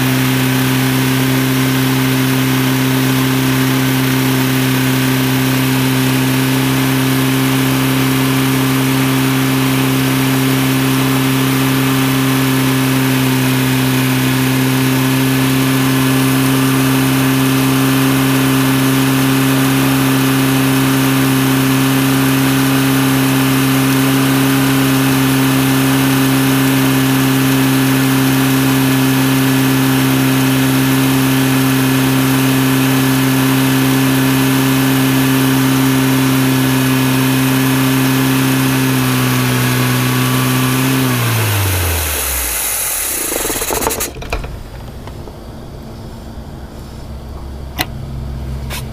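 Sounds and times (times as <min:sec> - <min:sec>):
car engine idling: 0:41.5 - 0:48.9.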